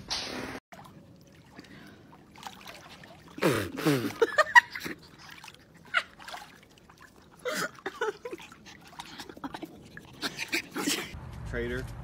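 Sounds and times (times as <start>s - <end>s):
pool water trickling and splashing: 0.1s - 11.2s
woman laughing: 3.8s - 6.3s, 7.4s - 11.2s.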